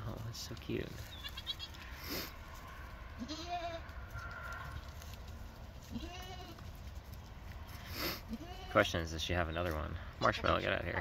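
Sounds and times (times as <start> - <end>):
goat bleating: 3.2 - 4.0, 5.8 - 6.6, 8.0 - 9.0, 10.2 - 11.0.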